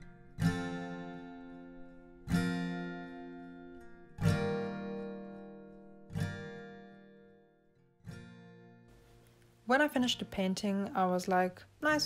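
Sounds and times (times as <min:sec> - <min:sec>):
acoustic guitar strumming chords: 0:00.0 - 0:09.4.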